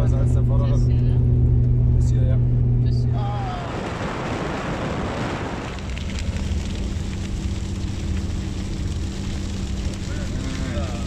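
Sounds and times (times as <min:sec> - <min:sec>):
vehicle hum and road noise: 0:00.0 - 0:11.0
wind rushing over microphone: 0:03.2 - 0:08.0.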